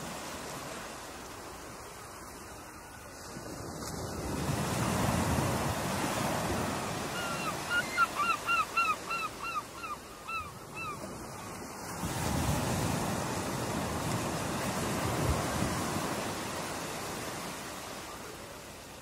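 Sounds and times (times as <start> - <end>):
ocean surf breaking: 3.3 - 9.0, 10.9 - 19.0
bird calling: 6.9 - 11.0.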